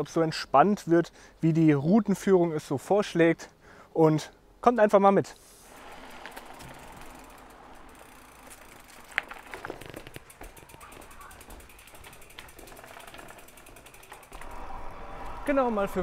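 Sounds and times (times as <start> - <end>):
bike freewheel ticking: 5.7 - 14.9
bike clicks and knocks: 5.8 - 15.4.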